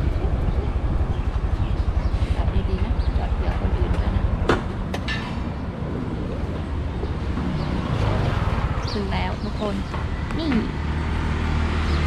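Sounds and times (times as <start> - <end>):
motorbike engine rumbling: 0.0 - 12.0.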